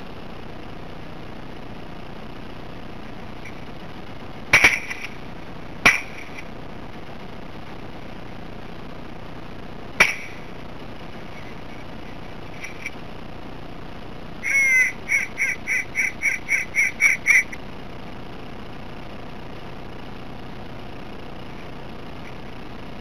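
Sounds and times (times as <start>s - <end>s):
sharp crack: 4.4s - 6.7s, 10.0s - 10.6s
loud quacks: 14.4s - 17.6s.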